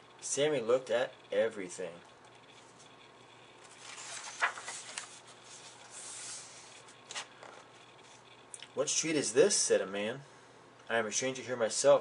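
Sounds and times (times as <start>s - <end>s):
paper page rustling: 3.6s - 8.2s.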